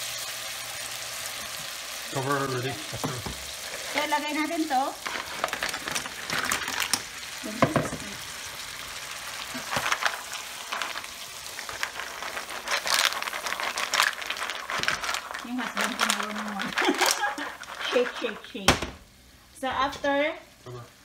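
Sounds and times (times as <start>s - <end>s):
mussels sizzling in a pan: 0.0s - 21.0s
shells clicking and scraping: 9.6s - 18.4s.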